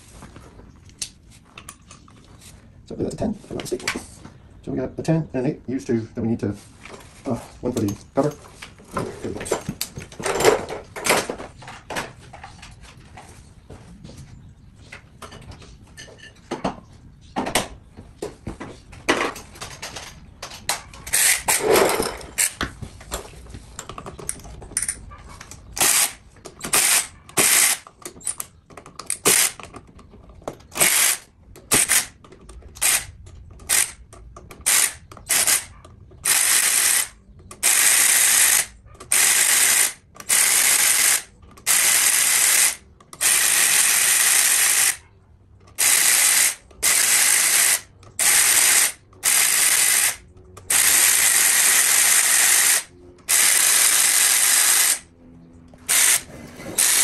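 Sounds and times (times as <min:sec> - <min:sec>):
ratchet wrench clicking: 0:25.8 - 0:28.5, 0:32.8 - 0:34.0, 0:34.6 - 0:45.0, 0:45.8 - 0:55.0.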